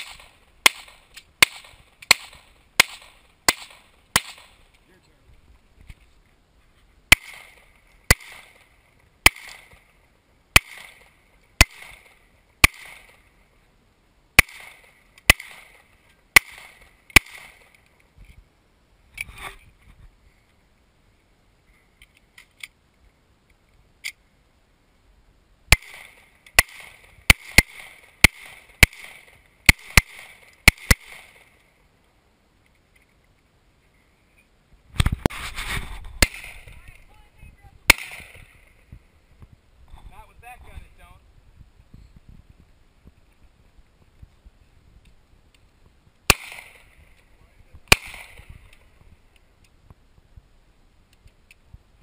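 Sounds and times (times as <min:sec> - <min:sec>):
handgun shots: 0:00.0 - 0:04.6, 0:07.1 - 0:08.6, 0:10.6 - 0:13.2, 0:14.4 - 0:15.8, 0:16.4 - 0:17.7, 0:36.2 - 0:36.8, 0:37.9 - 0:38.5, 0:46.3 - 0:46.9, 0:47.9 - 0:48.8.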